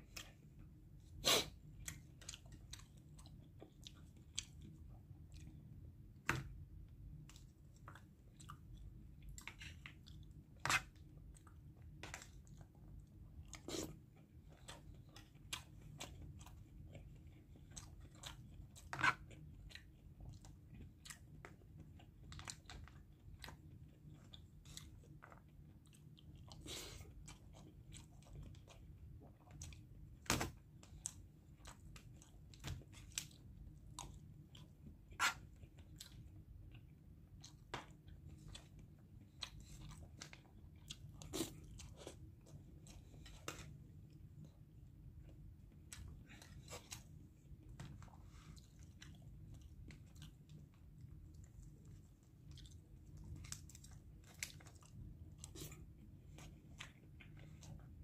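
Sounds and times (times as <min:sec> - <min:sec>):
person chewing: 0:00.0 - 0:06.0, 0:07.0 - 0:30.2, 0:30.8 - 0:58.0
faint low hum: 0:00.0 - 0:58.0.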